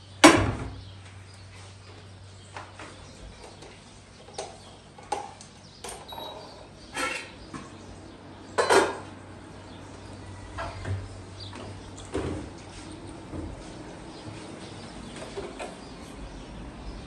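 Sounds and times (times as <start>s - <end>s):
knocks and clatter of kitchen work: 0.2s - 0.8s, 2.6s - 7.8s, 8.5s - 9.2s, 10.5s - 15.9s.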